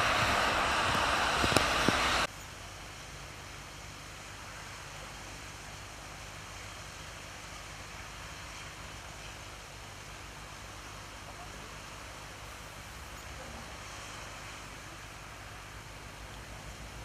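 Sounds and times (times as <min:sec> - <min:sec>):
low hum: 0:00.0 - 0:02.3
traffic on wet roads: 0:00.0 - 0:17.0.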